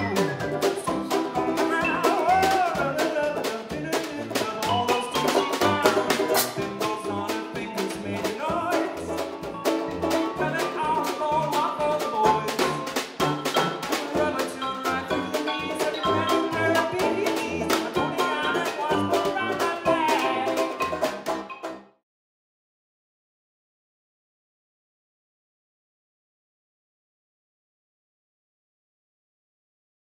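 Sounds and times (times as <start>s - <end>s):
xylophone: 0.0s - 3.5s, 4.6s - 22.0s
man singing: 0.0s - 21.1s
drum kit beat: 0.0s - 21.9s
strummed banjo: 0.0s - 22.0s
tuba bass line: 0.0s - 22.0s.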